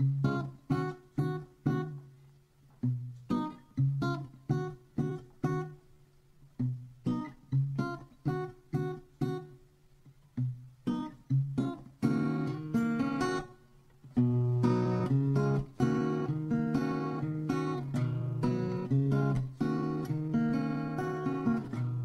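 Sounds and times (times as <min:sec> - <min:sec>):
acoustic guitar picking: 0:02.8 - 0:05.8, 0:10.4 - 0:22.0
strummed guitar chords: 0:10.4 - 0:22.0.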